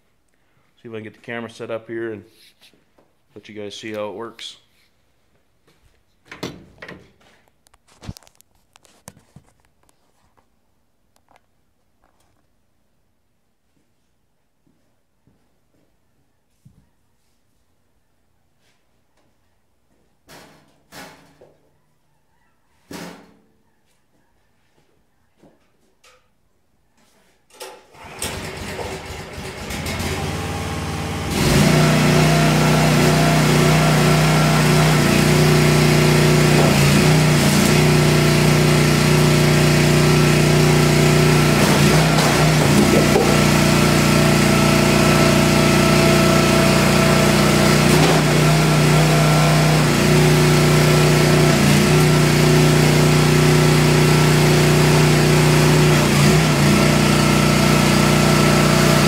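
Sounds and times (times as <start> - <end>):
log splitter engine running: 28.0 - 59.0.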